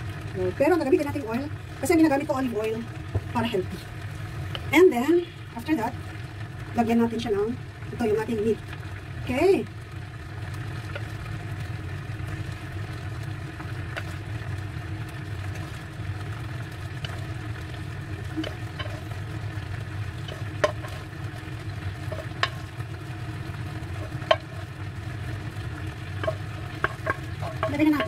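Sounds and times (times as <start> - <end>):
steady low hum: 0.0 - 28.0
wooden spoon scraping a pan: 13.6 - 14.3, 18.2 - 28.0
spoon knocking against a pan: 20.3 - 21.1, 24.0 - 24.6, 26.2 - 28.0.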